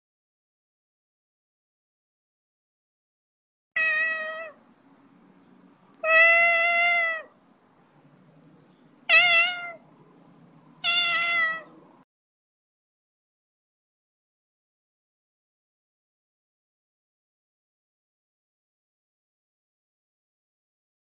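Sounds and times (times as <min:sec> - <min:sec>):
cat meowing: 0:03.8 - 0:04.6, 0:06.0 - 0:07.4, 0:09.0 - 0:09.8, 0:10.8 - 0:11.8.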